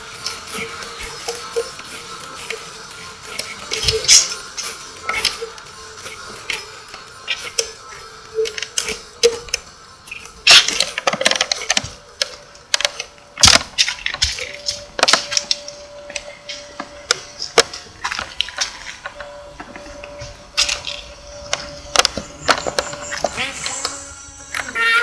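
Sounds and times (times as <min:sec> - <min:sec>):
faint steady tone: 0:14.3 - 0:24.9.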